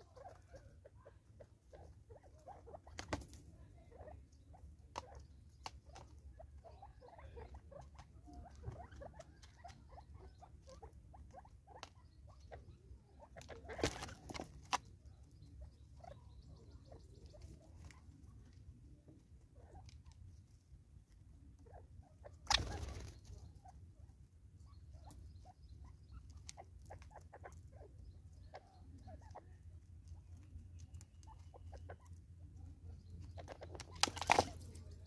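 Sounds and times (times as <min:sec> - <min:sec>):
birds pecking taps and clicks: 0:04.9 - 0:06.3, 0:13.4 - 0:15.5, 0:33.2 - 0:34.9.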